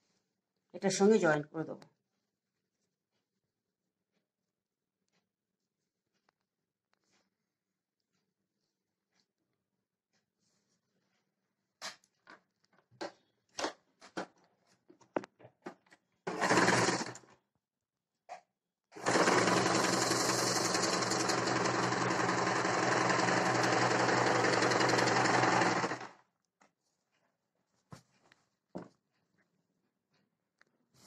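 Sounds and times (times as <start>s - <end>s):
sewing machine stitching: 16.3s - 17.3s, 19.0s - 26.2s.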